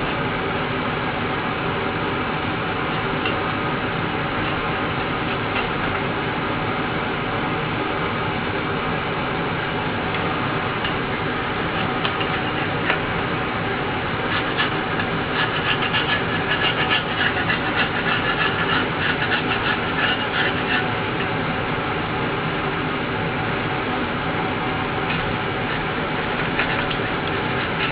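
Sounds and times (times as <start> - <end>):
steady mechanical drone: 0.0 - 27.9
scratchy scraping strokes: 11.8 - 13.0, 14.1 - 21.3, 25.1 - 27.9.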